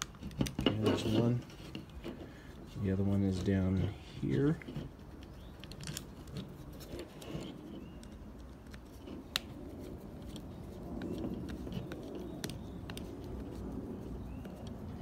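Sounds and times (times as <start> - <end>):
screwdriver scraping: 0.0 - 9.3.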